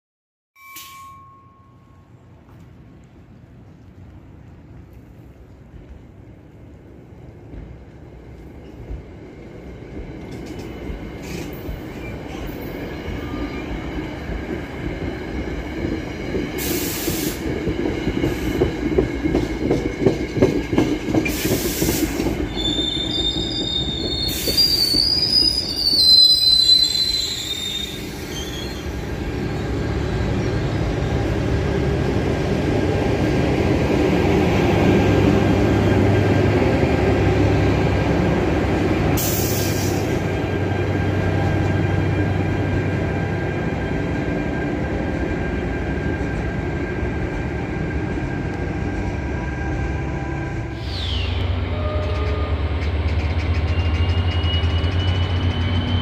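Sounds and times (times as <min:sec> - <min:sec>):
locomotive drone: 0:01.4 - 0:56.0
train wheels clattering on rails: 0:07.4 - 0:26.2, 0:51.9 - 0:56.0
wheel squeal: 0:22.5 - 0:29.0, 0:50.8 - 0:56.0.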